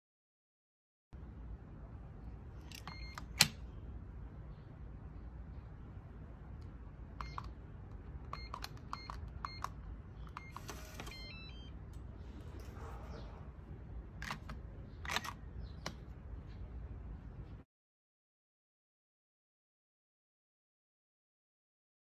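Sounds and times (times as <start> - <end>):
keypad lock beeps: 2.6 - 3.6, 7.2 - 7.6, 8.2 - 11.8
lock mechanism whirr: 2.6 - 3.6, 14.2 - 16.0
sharp clicks: 6.6 - 10.7, 14.2 - 16.0.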